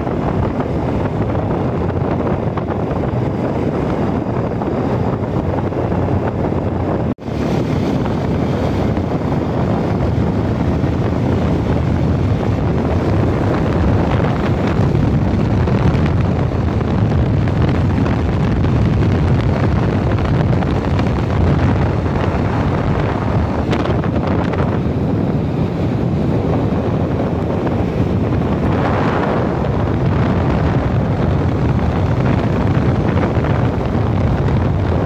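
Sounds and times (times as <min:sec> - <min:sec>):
motorbike running: 0:00.0 - 0:35.0
wind rushing over microphone: 0:00.0 - 0:35.0.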